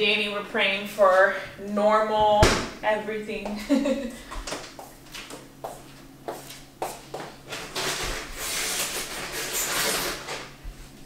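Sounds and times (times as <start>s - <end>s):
steady low hum: 0.0s - 11.0s
light footsteps: 4.3s - 7.4s.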